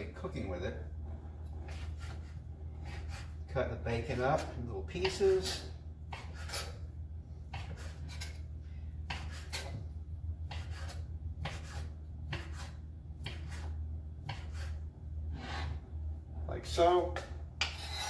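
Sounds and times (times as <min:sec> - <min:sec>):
steady low hum: 0:00.0 - 0:18.0
knife cutting on cutting board: 0:01.7 - 0:03.4, 0:05.1 - 0:06.8, 0:07.5 - 0:08.4, 0:09.1 - 0:09.8, 0:10.4 - 0:14.8.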